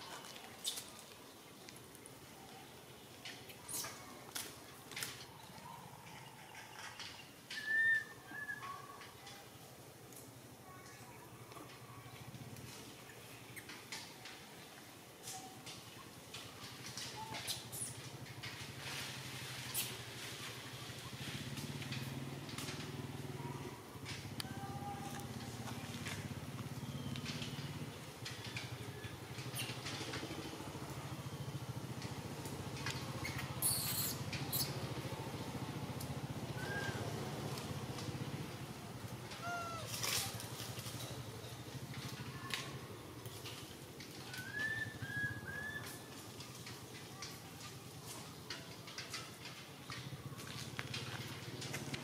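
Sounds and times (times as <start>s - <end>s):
rustles: 0.0s - 52.0s
high clicks and squeaks: 32.8s - 34.9s.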